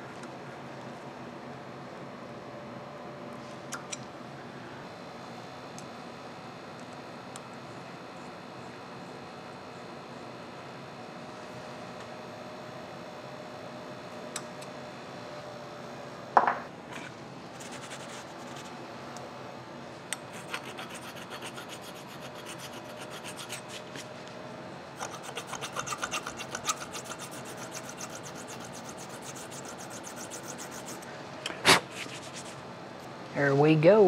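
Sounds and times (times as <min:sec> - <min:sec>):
faint steady hum: 0:00.0 - 0:34.0
file rasping on metal: 0:20.3 - 0:24.0, 0:25.0 - 0:31.0.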